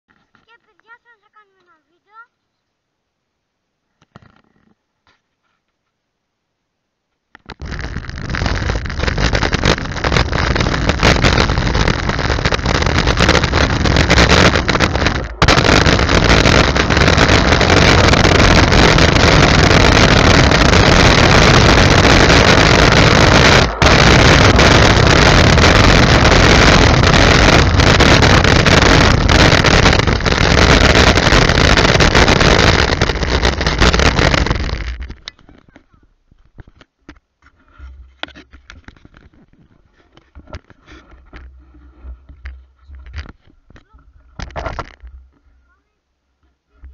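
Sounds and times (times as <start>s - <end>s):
wind on camera microphone: 7.6s - 35.6s.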